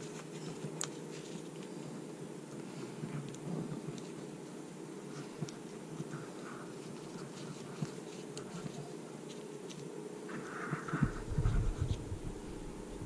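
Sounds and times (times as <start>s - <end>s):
paracord clicks and rustles: 0.0s - 4.3s, 5.2s - 10.0s
steady low hum: 0.0s - 13.0s.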